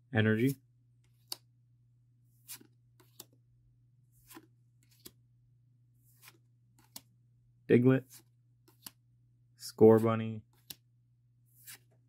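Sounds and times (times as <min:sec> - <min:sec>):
trading cards swishing and tapping: 0:02.4 - 0:03.4, 0:04.2 - 0:05.2, 0:06.0 - 0:07.1, 0:08.0 - 0:09.0, 0:09.8 - 0:10.9, 0:11.5 - 0:12.0.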